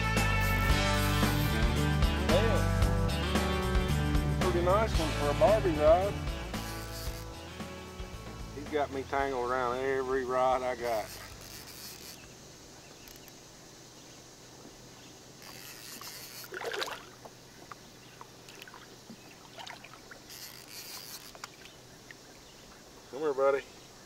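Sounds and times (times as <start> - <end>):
water lapping beside boat hull: 10.6 - 23.2
fish splashing: 15.3 - 23.0
water drips: 16.4 - 20.5.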